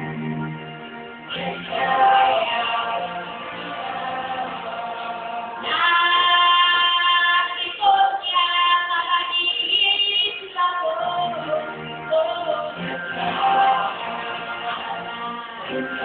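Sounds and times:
stage-show music accompaniment: 0.0 - 16.0
choir holding long sung notes: 1.2 - 8.3, 11.3 - 16.0.

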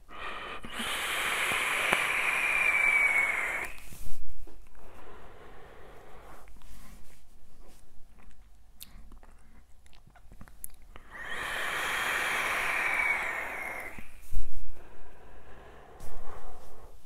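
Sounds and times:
vape coil sizzling and hissing: 0.7 - 3.9, 11.3 - 14.2.

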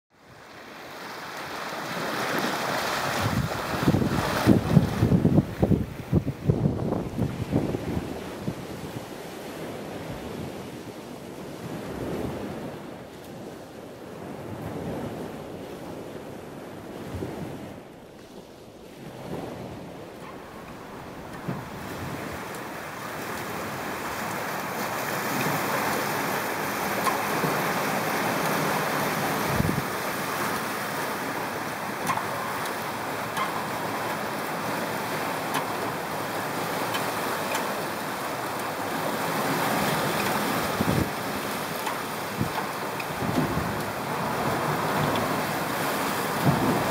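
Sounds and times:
water rushing past hulls: 0.1 - 46.9
wind on microphone: 1.9 - 31.0, 38.9 - 46.9.

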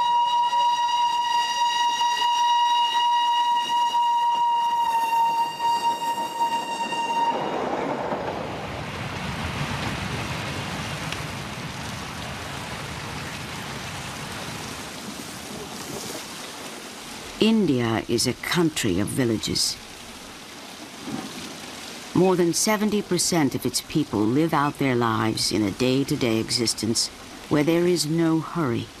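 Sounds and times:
train whistle: 0.0 - 7.9.

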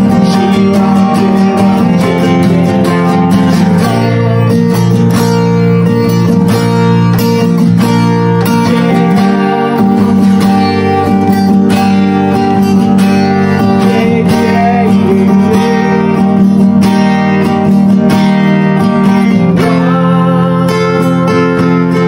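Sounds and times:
man singing a chant: 0.0 - 4.7, 8.5 - 10.7, 13.6 - 16.3, 19.4 - 22.0
acoustic guitar strummed: 0.0 - 22.0.

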